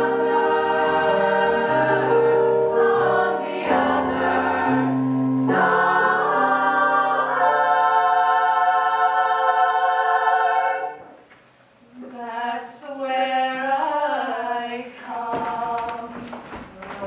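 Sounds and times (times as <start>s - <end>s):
choir singing in chords: 0.0s - 11.2s.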